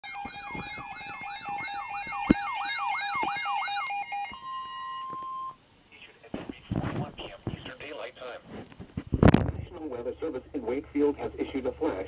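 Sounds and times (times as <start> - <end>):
steady alarm tone: 0.0 - 5.6
weather radio alert alarms: 0.0 - 5.6.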